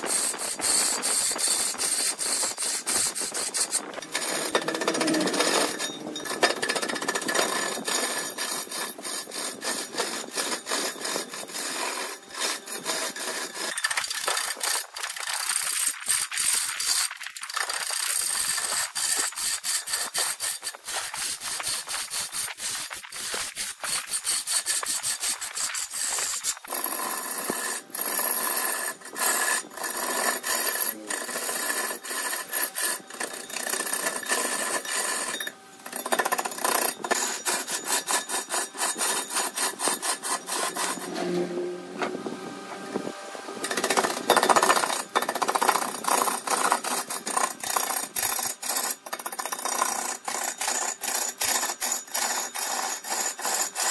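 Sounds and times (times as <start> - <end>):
lathe tool scraping wood: 0.0 - 53.9.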